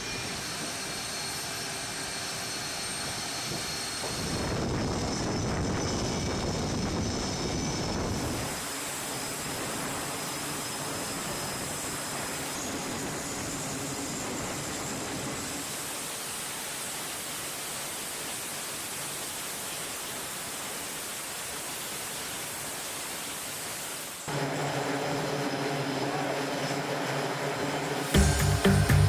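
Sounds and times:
turboprop engines running: 0.0s - 17.9s, 24.2s - 29.0s.

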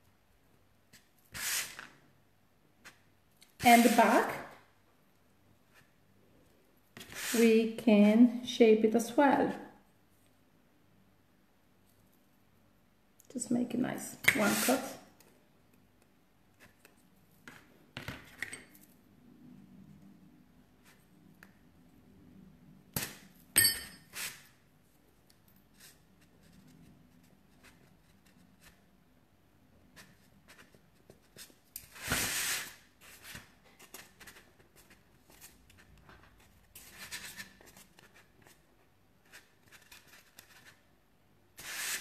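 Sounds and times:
metallic clink: 23.6s - 24.1s.

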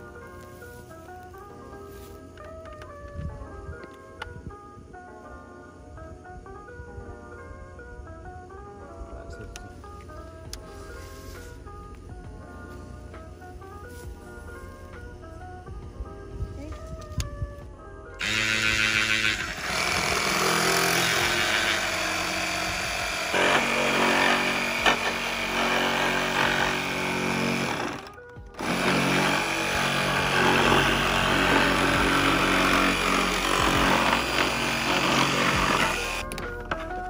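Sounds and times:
reciprocating saw cutting plastic: 18.2s - 36.2s.

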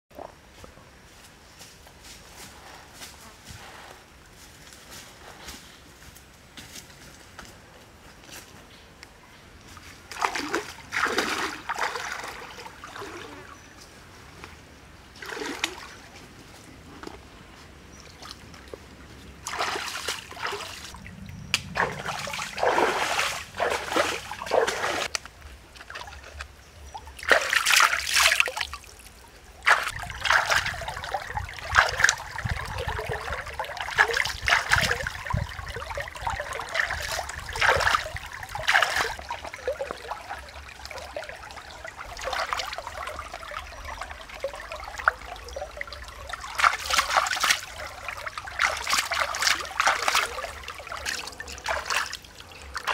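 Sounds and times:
hands splashing in stream water: 10.1s - 13.4s, 19.4s - 21.0s, 21.6s - 25.2s, 27.2s - 52.9s.

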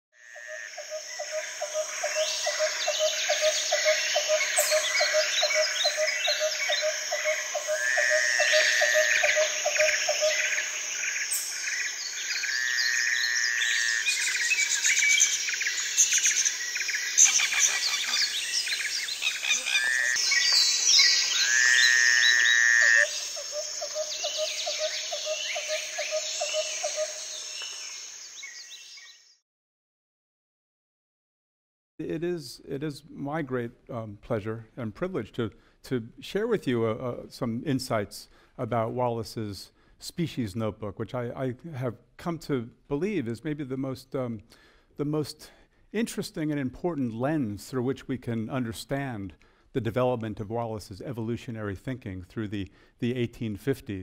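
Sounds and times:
pulsing frog trill: 0.2s - 11.1s, 19.2s - 27.2s
birds chirping and whistling: 1.1s - 7.8s, 8.4s - 29.3s.

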